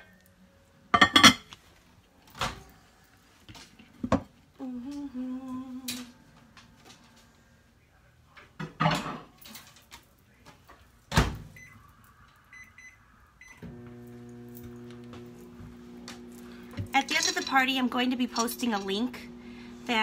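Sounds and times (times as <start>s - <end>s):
microwave running hum: 12.8s - 20.0s.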